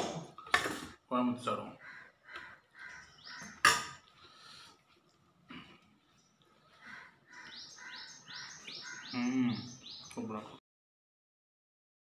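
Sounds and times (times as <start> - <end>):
bird chirping: 1.9 - 3.6, 6.2 - 10.6.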